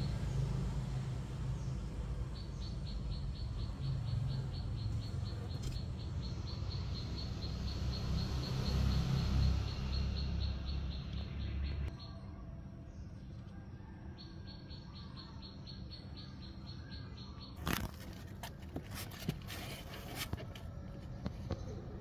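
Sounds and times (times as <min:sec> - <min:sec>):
cricket chirping: 0:00.0 - 0:12.4.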